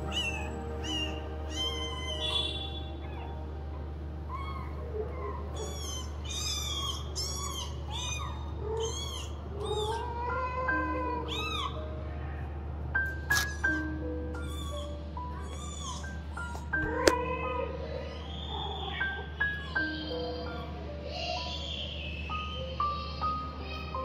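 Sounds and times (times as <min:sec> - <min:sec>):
kittens mewing: 0:00.0 - 0:12.6, 0:13.3 - 0:22.0.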